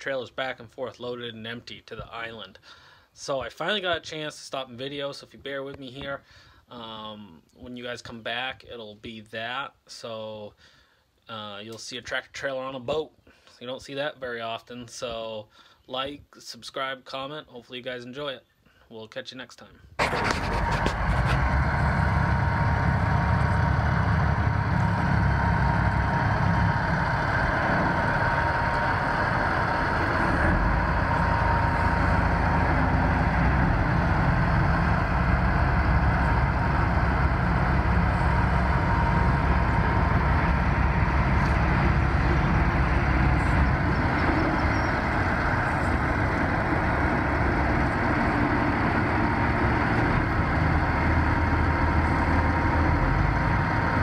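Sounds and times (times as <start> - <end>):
diesel engine running: 20.0 - 54.0
faint steady whine: 20.0 - 54.0.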